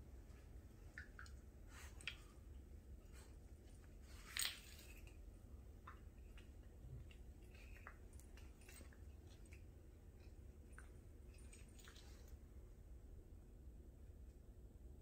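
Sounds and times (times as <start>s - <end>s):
dog and kitten play-wrestling: 6.0s - 12.5s.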